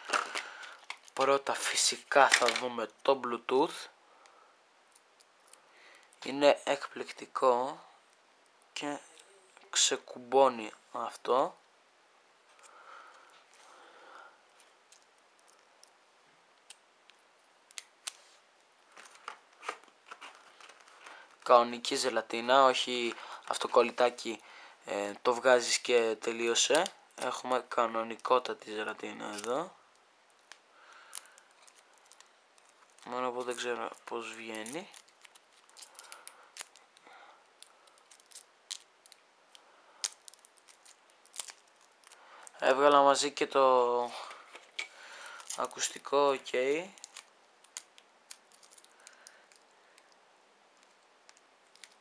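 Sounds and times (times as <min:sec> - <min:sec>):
plastic packaging clicks and rustles: 0:00.0 - 0:01.4, 0:02.1 - 0:02.7, 0:18.8 - 0:21.9, 0:29.0 - 0:37.0, 0:37.6 - 0:43.0, 0:44.2 - 0:52.0
plastic packaging clicks: 0:44.5 - 0:50.2, 0:50.8 - 0:52.0.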